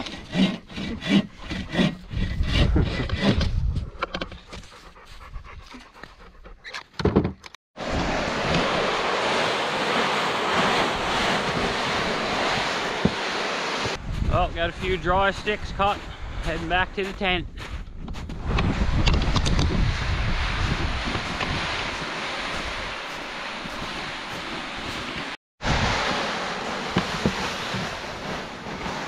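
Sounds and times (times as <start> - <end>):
hand saw cutting wood: 0.0 - 5.0
steady rushing noise: 7.8 - 17.4, 18.4 - 29.0.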